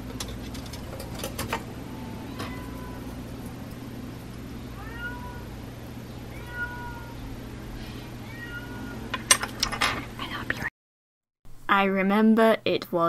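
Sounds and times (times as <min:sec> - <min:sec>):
low hum: 0:00.0 - 0:10.7
faint cat meowing: 0:02.0 - 0:03.4, 0:04.6 - 0:07.4, 0:08.2 - 0:09.1.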